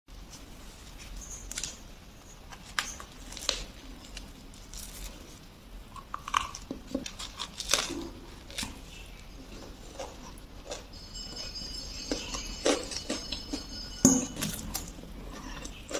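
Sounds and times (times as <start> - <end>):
person biting and chewing sandwich: 6.0 - 10.9.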